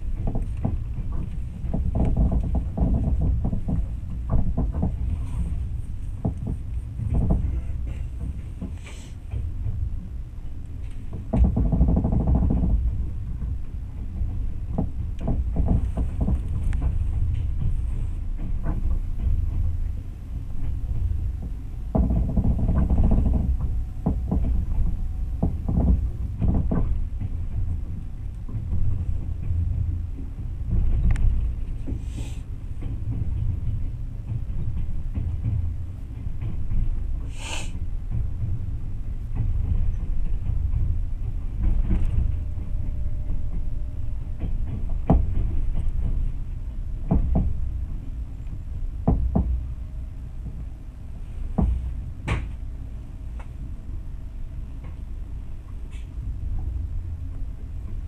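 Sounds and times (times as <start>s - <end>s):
train rumbling along track: 0.0s - 58.0s
wheels knocking over rails: 14.2s - 31.9s
brief hiss: 37.3s - 37.8s.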